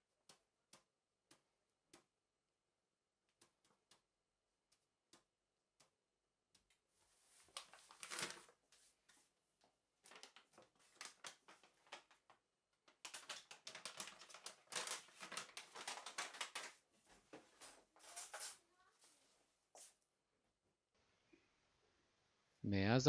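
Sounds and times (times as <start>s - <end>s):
paper bag rustling: 7.1s - 8.9s, 10.0s - 18.6s
packet crinkling: 7.4s - 8.6s, 10.0s - 16.8s.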